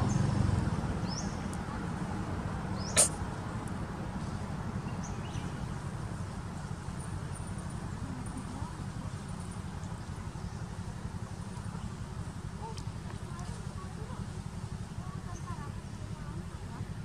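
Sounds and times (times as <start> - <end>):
baby monkeys squeaking: 2.9 - 3.2.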